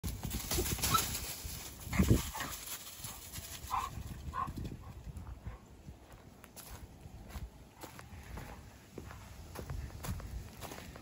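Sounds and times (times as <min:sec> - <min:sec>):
paws scuffling through dry leaves: 0:00.0 - 0:04.8.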